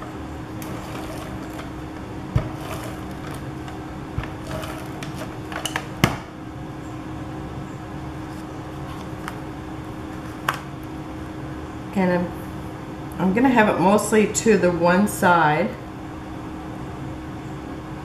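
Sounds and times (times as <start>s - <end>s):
paper handling: 8.3s - 10.9s.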